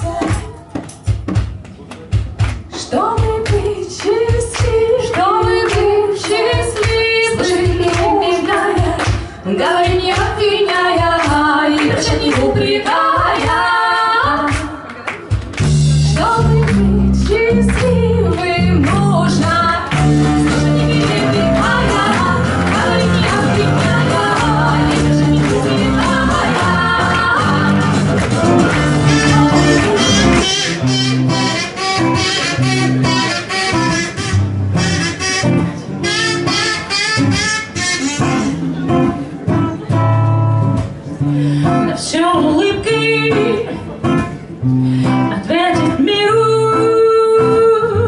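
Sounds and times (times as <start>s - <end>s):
hand drum beats: 0.0s - 13.6s, 14.3s - 35.5s
acoustic guitar: 0.0s - 48.0s
women singing folk song: 2.8s - 14.8s, 16.1s - 30.4s, 41.6s - 43.8s, 45.2s - 48.0s.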